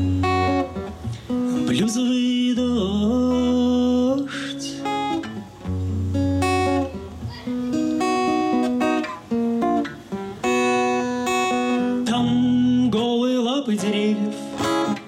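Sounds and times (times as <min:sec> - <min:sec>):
acoustic guitar playing chords: 0:00.0 - 0:15.0
person singing: 0:01.3 - 0:05.1, 0:11.8 - 0:15.0.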